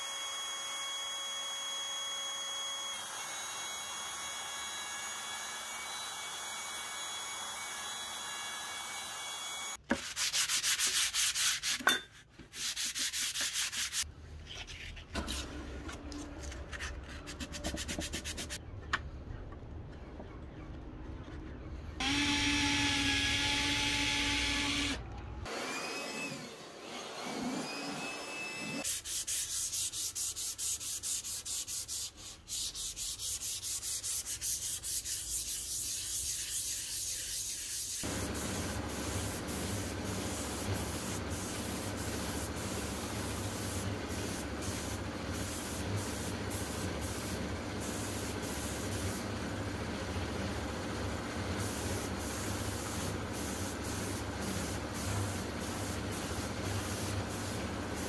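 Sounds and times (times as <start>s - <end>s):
hand sanding wood: 9.9s - 11.9s, 12.5s - 14.1s, 17.3s - 18.6s, 28.8s - 47.4s
spray gun hissing: 36.7s - 49.3s, 51.6s - 58.0s.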